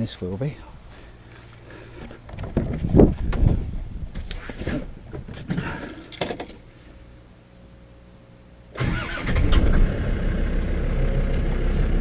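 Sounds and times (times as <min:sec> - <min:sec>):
faint steady hum: 0:00.0 - 0:12.0
diesel engine idling: 0:08.8 - 0:12.0.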